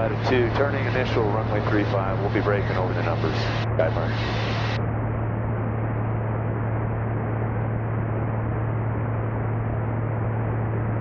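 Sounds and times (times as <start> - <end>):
airplane engine and propeller drone: 0.0 - 11.0.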